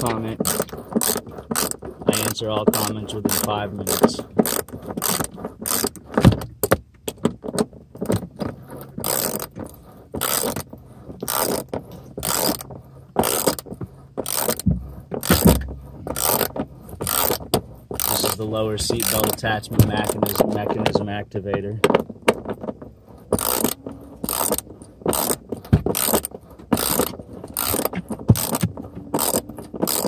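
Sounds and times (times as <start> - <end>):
dull knocks: 6.1 - 8.5, 13.2 - 30.0
socket ratchet clicking: 11.2 - 11.6, 12.2 - 12.6, 14.2 - 14.6, 16.2 - 16.5, 17.1 - 17.4, 23.4 - 30.0.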